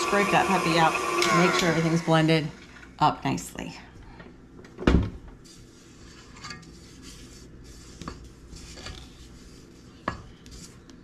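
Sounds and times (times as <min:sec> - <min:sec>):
spatula scraping metal bowl: 0:05.5 - 0:09.8.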